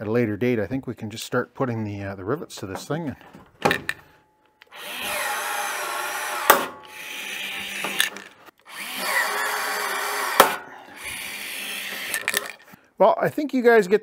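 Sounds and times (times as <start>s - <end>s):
power rivet gun running: 4.7s - 12.7s.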